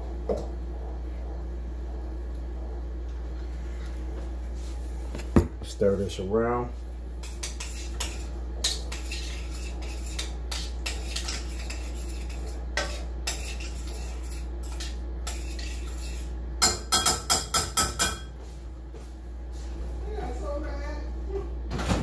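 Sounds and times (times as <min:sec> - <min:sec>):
steady low hum: 0:00.0 - 0:22.0
utensil scraping in pan: 0:07.2 - 0:16.4.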